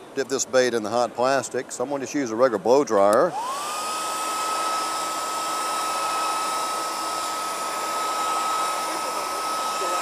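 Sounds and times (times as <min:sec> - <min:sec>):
blow dryer running: 0:03.3 - 0:10.0.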